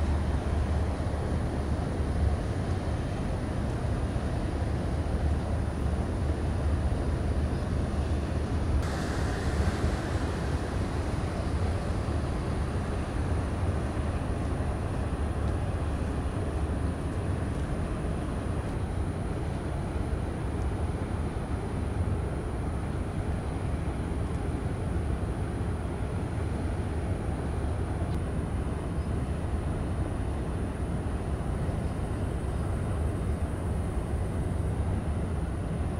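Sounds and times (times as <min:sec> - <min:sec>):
low outdoor rumble: 0:00.0 - 0:35.9
hiss: 0:08.8 - 0:13.2.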